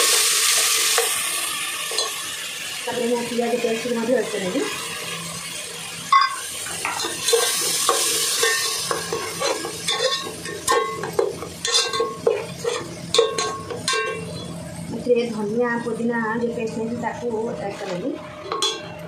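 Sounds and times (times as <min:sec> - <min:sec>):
paste sizzling in hot oil: 0:00.0 - 0:14.2
spatula scraping pan: 0:06.9 - 0:14.4.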